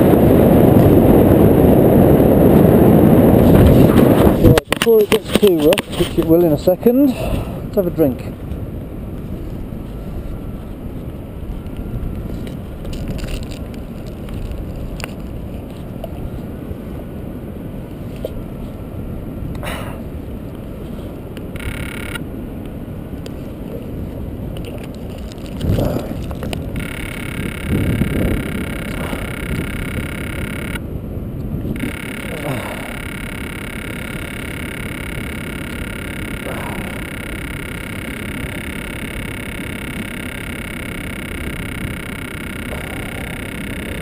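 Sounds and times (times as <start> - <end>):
wind buffeting microphone: 0.0 - 21.9, 22.8 - 37.8
rustling and crackling: 3.4 - 6.6, 8.4 - 16.5, 23.2 - 30.8.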